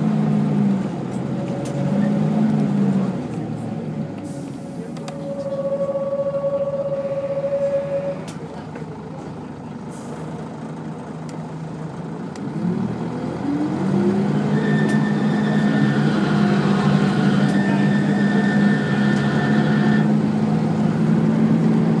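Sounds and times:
bus engine revving: 0.0 - 22.0
high steady whine: 5.0 - 8.3.

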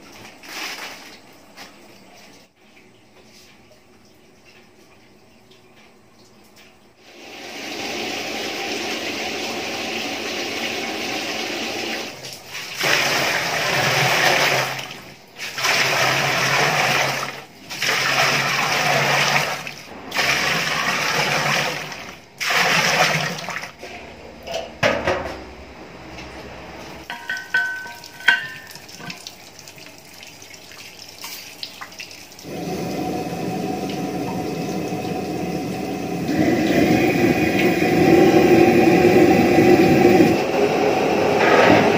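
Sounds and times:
water pouring into metal pot: 27.1 - 40.5.

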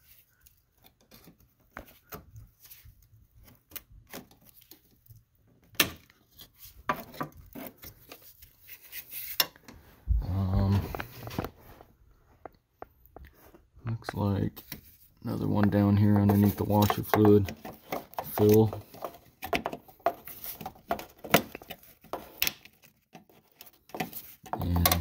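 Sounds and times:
plastic clips clicking and scraping: 15.6 - 25.0.

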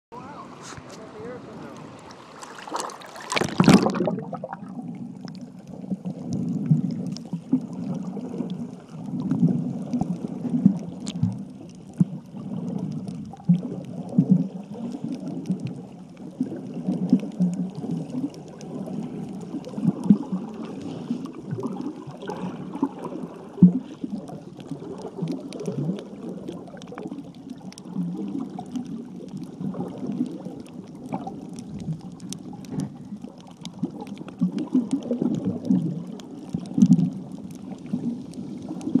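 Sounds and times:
splash into water: 2.2 - 4.7
muffled underwater gurgling: 2.8 - 39.0.

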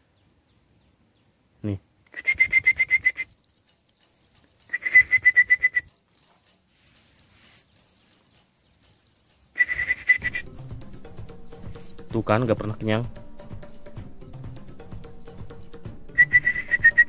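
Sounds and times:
bird chick begging chirps: 2.1 - 12.5.

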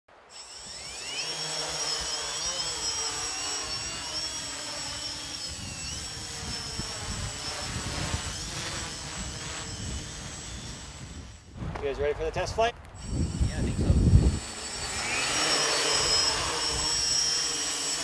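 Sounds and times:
drone motors whining: 0.3 - 11.5, 13.0 - 18.0
wind rumbling on microphone: 5.4 - 15.2.

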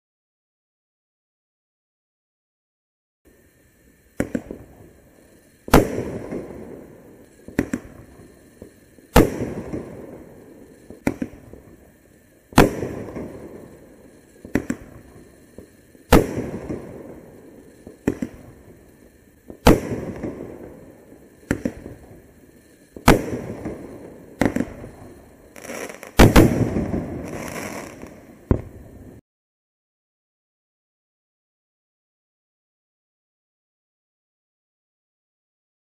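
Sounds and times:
firework launch bangs: 4.2 - 4.7, 5.7 - 6.8, 7.4 - 11.6, 12.5 - 13.7, 14.4 - 18.6, 19.5 - 22.2, 23.0 - 28.8
firework break bangs with rumble: 26.2 - 27.3.

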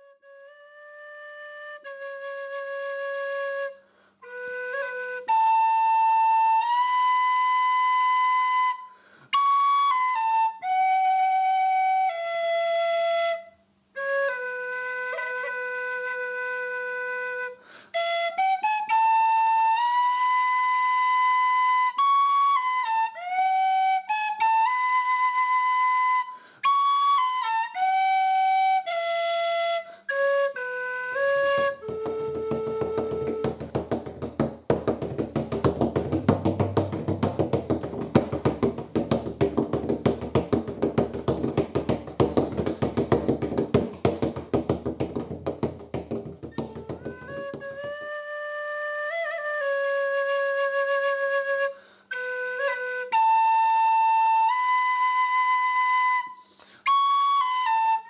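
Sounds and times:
wind instrument slow melody: 0.0 - 33.4, 46.7 - 58.0.

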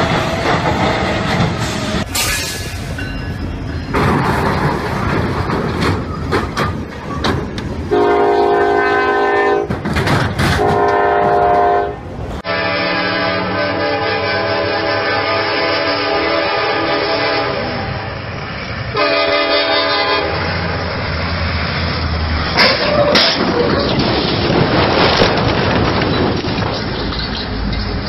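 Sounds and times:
low rumble of approaching train: 0.0 - 28.0
locomotive air horn blasts: 7.9 - 9.7, 10.6 - 18.0, 18.9 - 20.6.

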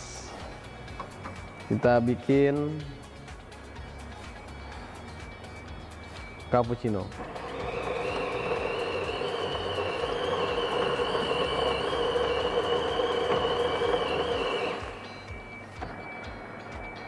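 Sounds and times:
coffee grinder grinding beans: 7.2 - 15.0.

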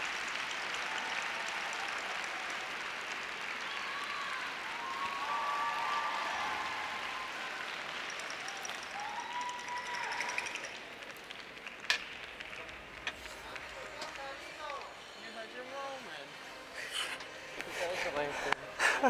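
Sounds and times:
arena crowd applauding: 0.0 - 15.0.

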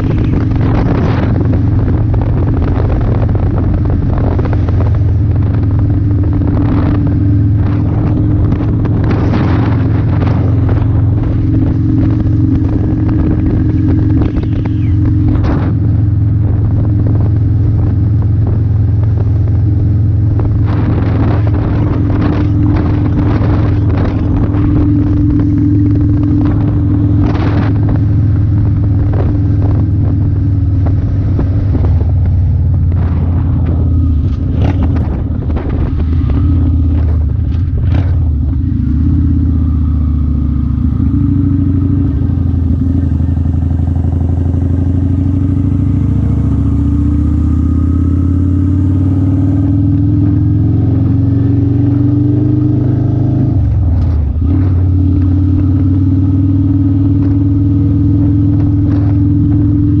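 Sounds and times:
motorcycle engine running: 0.0 - 60.0.

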